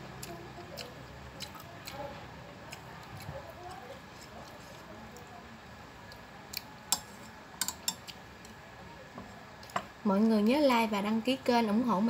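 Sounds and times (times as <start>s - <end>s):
chopsticks clicking on ceramic bowl: 6.9s - 8.2s.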